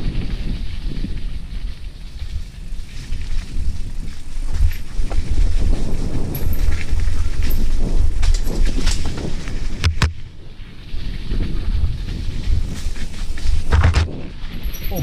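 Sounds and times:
bike rumbling and rattling: 0.0s - 15.0s
wind buffeting microphone: 0.0s - 15.0s
bike hitting bumps knocks: 8.2s - 10.2s, 13.7s - 14.2s.

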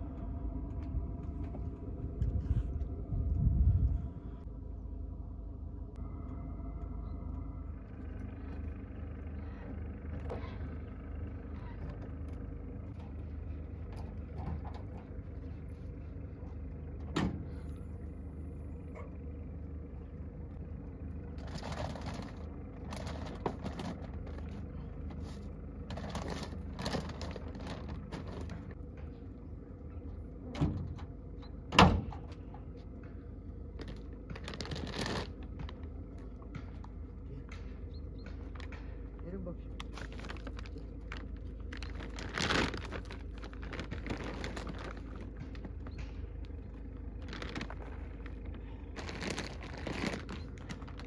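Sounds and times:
steady low hum: 0.0s - 51.0s
plastic bags rustling: 21.4s - 24.6s, 25.2s - 28.8s, 33.8s - 35.9s, 39.8s - 51.0s.

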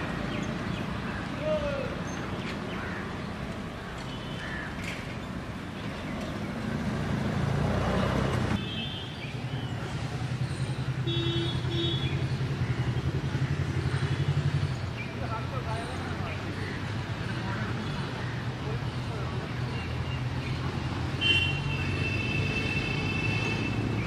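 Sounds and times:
road traffic: 0.0s - 24.0s
vehicle passing by: 6.1s - 8.6s.

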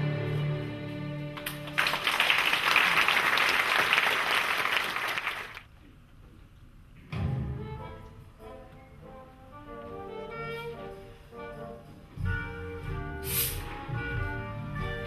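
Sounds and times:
audience applause: 1.4s - 5.7s.

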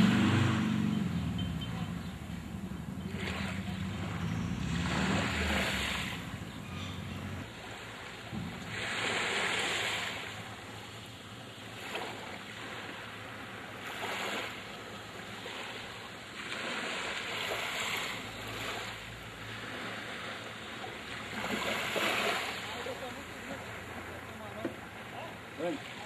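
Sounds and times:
small waves lapping on sand: 0.0s - 26.0s.

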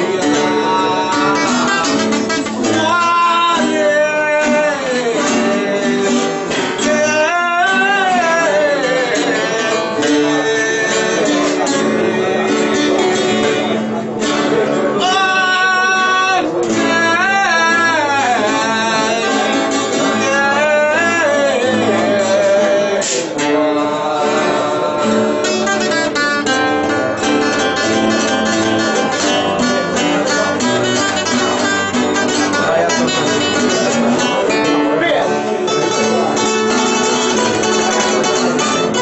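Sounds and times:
man singing high wavering verse: 0.0s - 13.7s
acoustic guitars picking: 0.0s - 39.0s.

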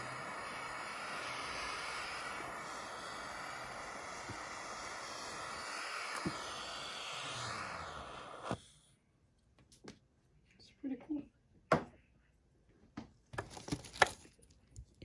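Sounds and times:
torch shutoff click: 0.0s - 8.6s
gas torch hissing: 0.0s - 8.9s.

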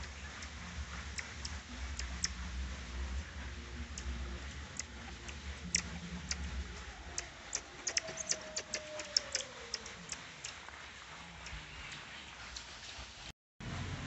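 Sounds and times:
marmosets chirping: 0.0s - 2.5s, 3.9s - 10.8s.

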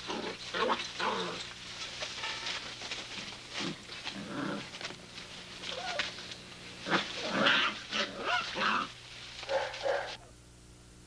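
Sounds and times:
puppies whimpering and yipping: 5.6s - 6.2s.

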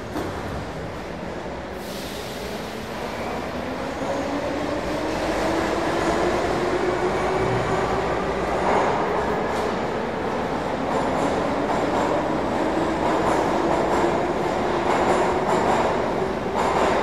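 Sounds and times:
metro train whine: 0.0s - 17.0s.

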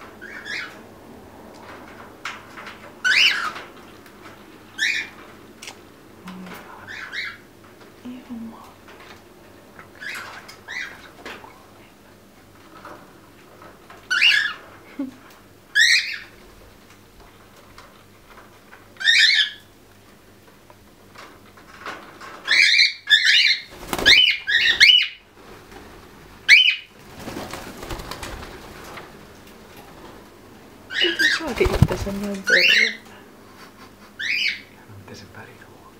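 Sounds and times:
parrots chirping: 0.2s - 0.8s, 3.0s - 3.6s, 4.8s - 5.2s, 6.8s - 7.5s, 9.8s - 11.1s, 14.1s - 14.6s, 15.7s - 16.4s, 19.0s - 19.7s, 22.4s - 25.2s, 26.4s - 26.9s, 30.9s - 33.0s, 34.2s - 34.8s
feathers rustling: 31.1s - 32.7s.

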